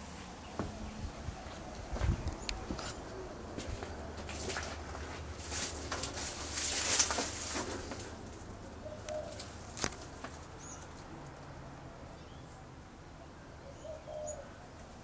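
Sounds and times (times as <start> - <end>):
dove cooing: 8.6 - 10.2, 13.6 - 14.7.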